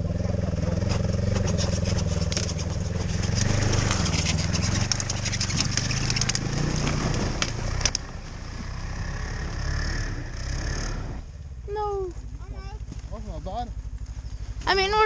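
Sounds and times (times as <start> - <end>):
snowmobile engine running: 0.0 - 15.0
twigs snapping and scraping: 0.8 - 8.1.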